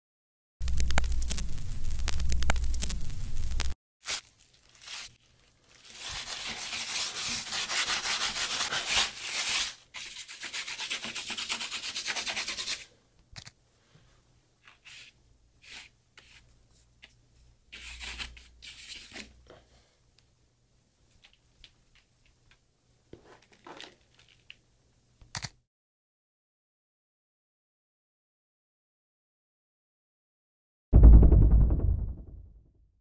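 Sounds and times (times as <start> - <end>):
paintbrush scrubbing rough surface: 5.9 - 12.8.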